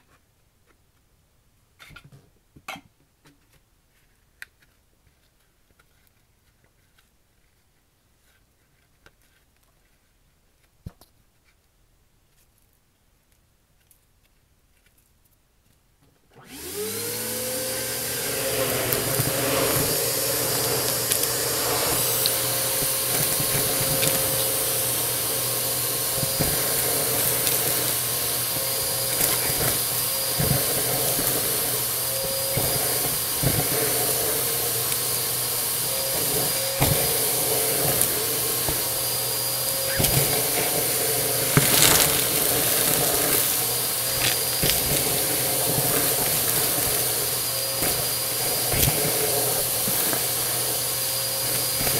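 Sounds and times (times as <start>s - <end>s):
vacuum cleaner motor whine: 16.4s - 51.9s
debris crunching in vacuum: 16.5s - 51.9s.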